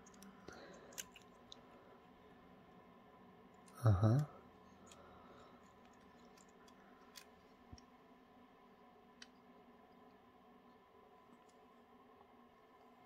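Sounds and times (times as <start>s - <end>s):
faint plastic clicks: 4.7s - 7.9s.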